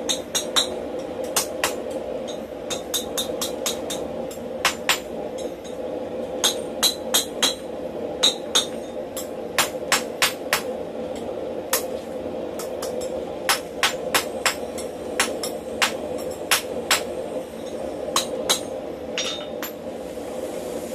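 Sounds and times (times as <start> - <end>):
steady hum: 0.0 - 20.9
hammer ringing on anvil: 19.2 - 19.7.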